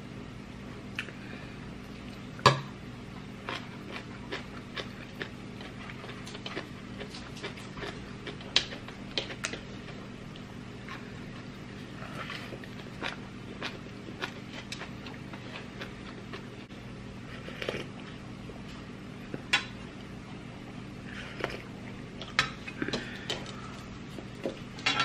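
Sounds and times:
low steady hum: 0:00.0 - 0:25.0
chewing clicks and smacks: 0:03.4 - 0:11.0.

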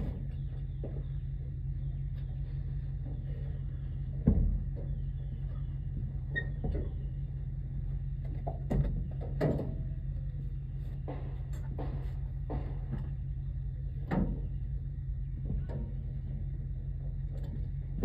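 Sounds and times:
knocks on wood: 0:11.1 - 0:13.1.

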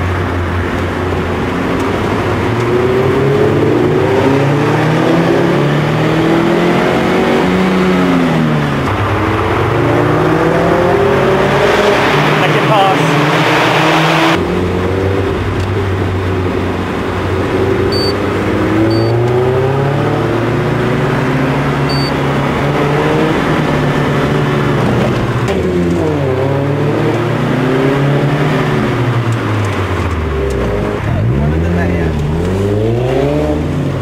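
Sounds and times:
car engine and exhaust: 0:00.0 - 0:34.0
short high beeps: 0:17.9 - 0:18.2, 0:18.9 - 0:19.2, 0:21.9 - 0:22.2.

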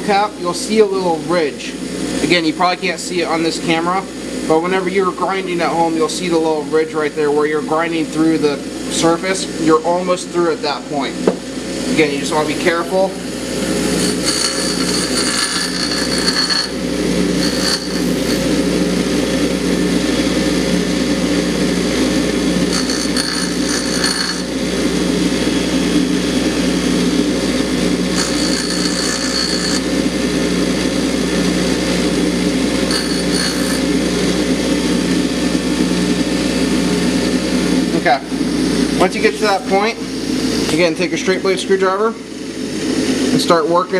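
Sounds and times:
bench grinder motor running: 0:11.5 - 0:36.3
high-pitched metal grinding: 0:12.6 - 0:18.6, 0:22.6 - 0:24.7, 0:28.1 - 0:30.1, 0:32.8 - 0:34.1.

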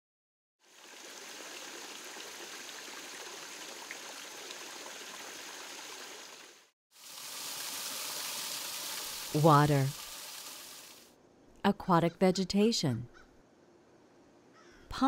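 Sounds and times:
rush of falling water: 0:00.6 - 0:11.1
waterfall splashing into pond: 0:00.6 - 0:11.1.

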